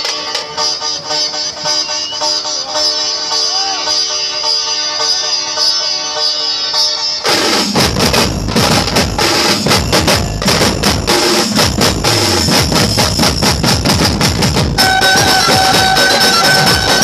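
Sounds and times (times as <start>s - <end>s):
held melody line: 0.1s - 17.0s
barrel drums beating fast: 7.3s - 17.0s.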